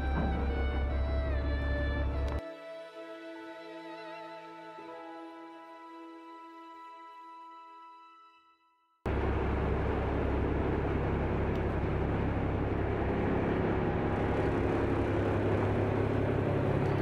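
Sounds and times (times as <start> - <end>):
ferry engine droning: 0.0 - 2.4, 9.1 - 17.0.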